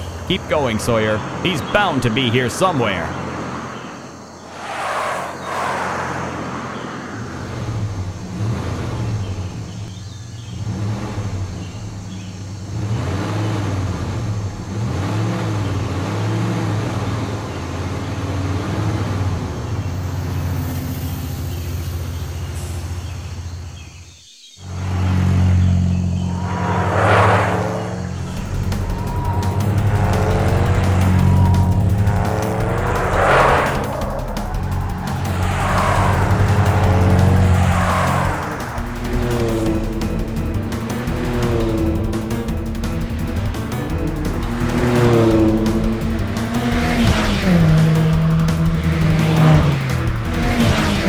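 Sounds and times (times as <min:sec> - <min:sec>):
car whooshing past: 0:03.1 - 0:08.0, 0:24.6 - 0:51.0
cartoon car engine revving: 0:04.6 - 0:19.9, 0:24.6 - 0:51.0.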